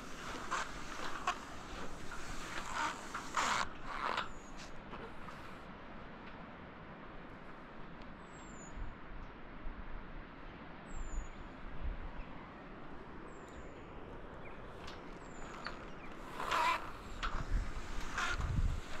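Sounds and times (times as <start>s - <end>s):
wind rumble on microphone: 10.9s - 12.3s, 15.4s - 19.0s.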